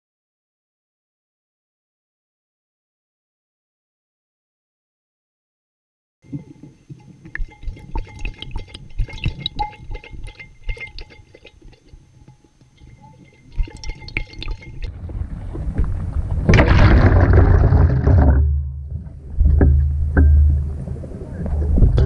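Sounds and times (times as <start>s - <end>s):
muffled water gurgling and sloshing: 6.2s - 22.0s.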